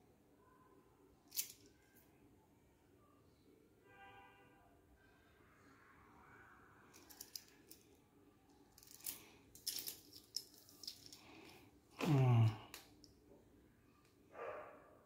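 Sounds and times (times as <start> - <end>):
metal watch bracelet clinking: 1.3 - 1.8, 7.0 - 7.9, 8.7 - 11.6
man humming: 12.0 - 12.8.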